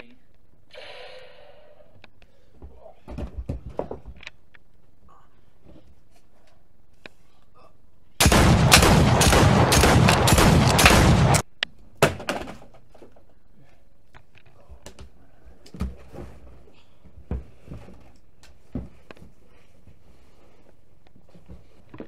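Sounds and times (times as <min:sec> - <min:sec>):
rapid automatic gunfire: 0:08.2 - 0:11.4.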